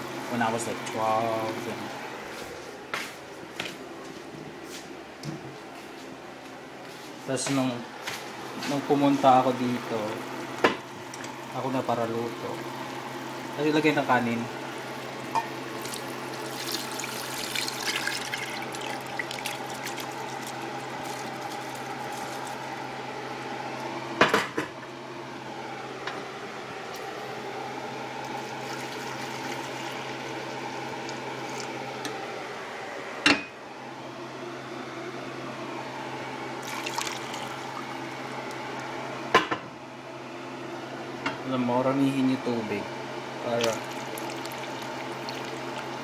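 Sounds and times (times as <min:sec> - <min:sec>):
steady hum: 0:00.0 - 0:46.0
liquid sloshing and splashing: 0:15.8 - 0:22.6, 0:36.6 - 0:37.9, 0:43.6 - 0:46.0.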